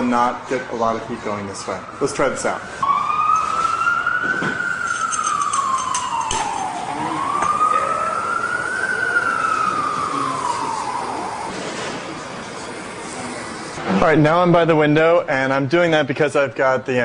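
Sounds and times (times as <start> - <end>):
siren wailing: 1.4 - 11.5.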